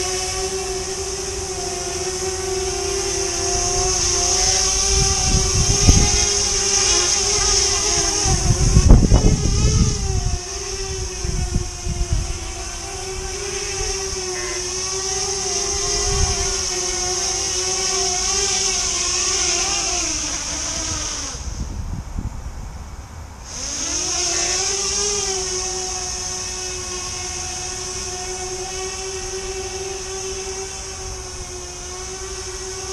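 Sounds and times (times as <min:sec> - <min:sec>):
drone motors buzzing: 0:00.0 - 0:22.3, 0:23.4 - 0:32.9.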